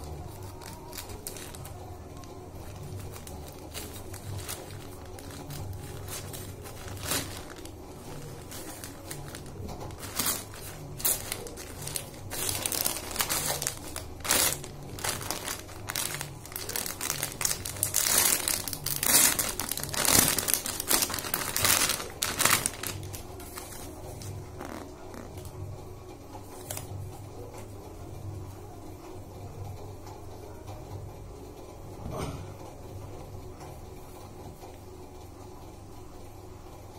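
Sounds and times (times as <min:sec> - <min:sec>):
plastic packaging crinkling: 0:00.0 - 0:25.6.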